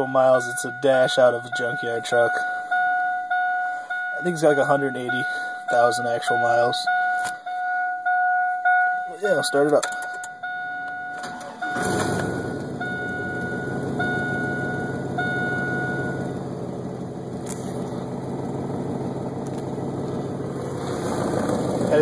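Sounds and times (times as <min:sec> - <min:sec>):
dashboard warning chime: 0:00.0 - 0:16.4
truck engine starting and idling: 0:09.4 - 0:22.0.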